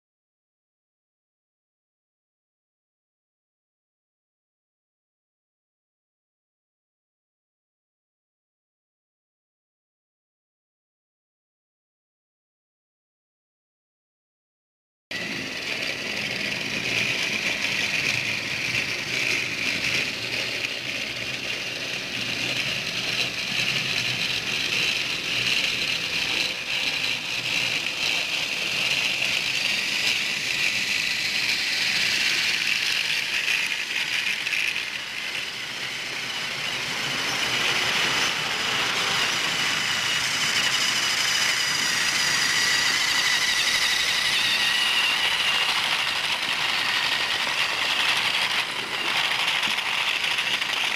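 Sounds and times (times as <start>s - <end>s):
toy trains whirring and rattling: 15.1s - 50.9s.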